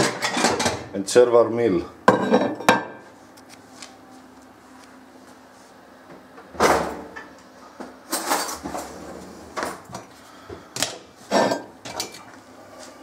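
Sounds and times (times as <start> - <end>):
kitchen items knocking and rattling: 0.0 - 0.9, 2.1 - 3.0.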